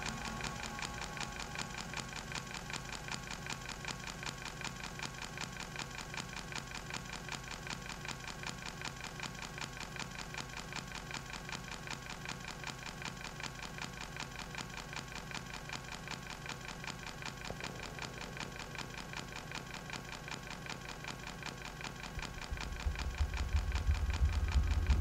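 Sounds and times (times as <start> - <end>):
fast clicking pulse: 0.0 - 25.0
deep bass tone: 22.6 - 25.0.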